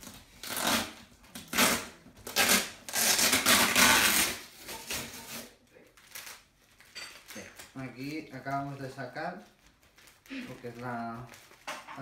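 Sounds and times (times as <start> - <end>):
paper envelope tearing: 0.0 - 6.6.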